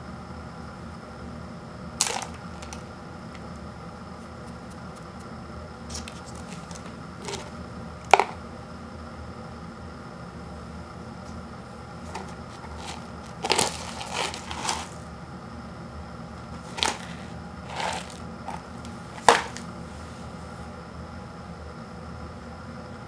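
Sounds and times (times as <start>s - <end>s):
faint hum: 0.0s - 23.0s
paper cup and packets handled: 2.0s - 2.8s, 5.9s - 8.4s, 12.0s - 15.0s, 16.6s - 19.7s.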